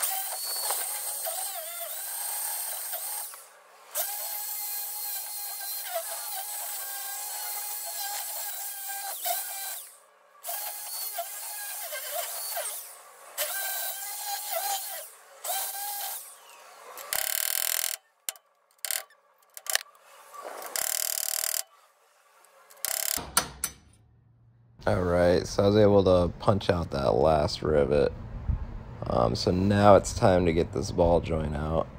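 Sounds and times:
hammer drill whining: 0.0 - 21.8, 22.4 - 23.5
sharp knocks: 23.1 - 24.0.

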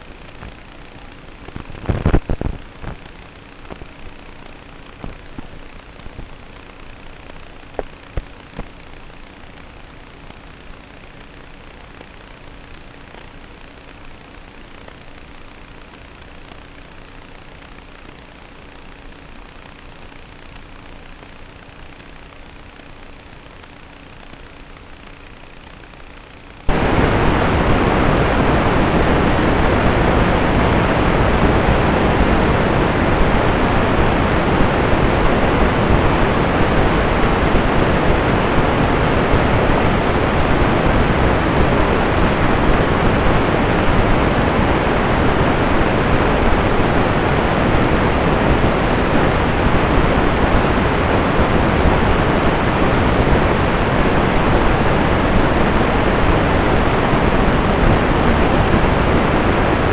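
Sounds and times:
loud static hiss: 0.0 - 59.9.

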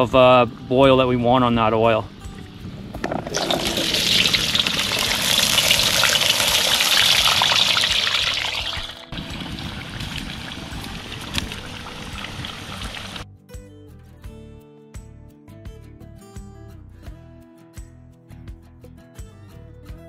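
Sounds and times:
music: 0.0 - 6.1, 7.5 - 20.0
fries sizzling in hot oil: 3.2 - 13.2.

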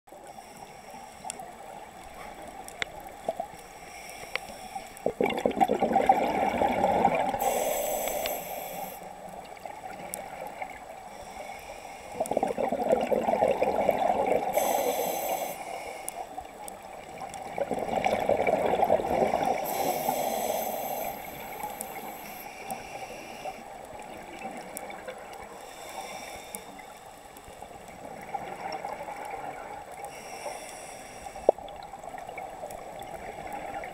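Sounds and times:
gurgling exhaled bubbles: 5.0 - 7.7, 12.2 - 14.9, 17.0 - 22.1
regulator hiss: 7.3 - 9.2, 14.4 - 16.4, 19.2 - 23.7, 25.5 - 27.6, 30.1 - 31.5.

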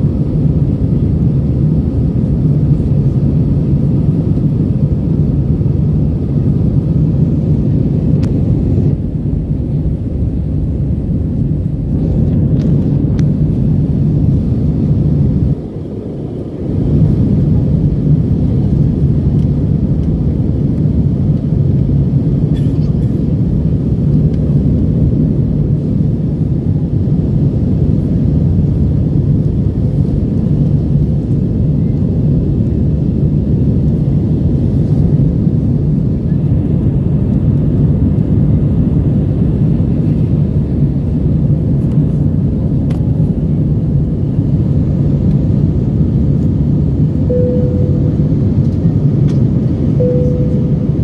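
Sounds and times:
aircraft engines rumbling: 0.0 - 51.0
rushing air: 47.2 - 51.0
short tones: 47.3 - 48.6, 50.0 - 51.0.

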